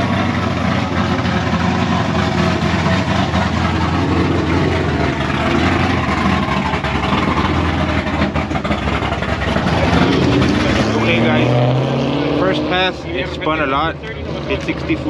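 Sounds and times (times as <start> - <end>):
loud engine idling: 0.0 - 15.0.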